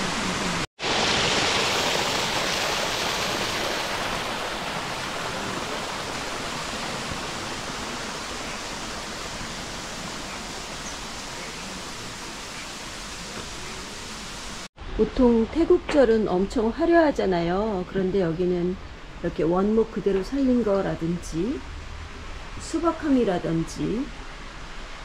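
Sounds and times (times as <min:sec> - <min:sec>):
waterfall rushing over rocks: 0:00.0 - 0:14.7.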